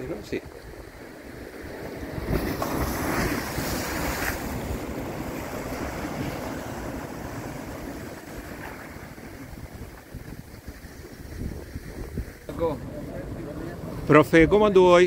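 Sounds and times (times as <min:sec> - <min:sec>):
waves crashing on rocks: 0:00.0 - 0:14.7
wind buffeting microphone: 0:00.0 - 0:15.0.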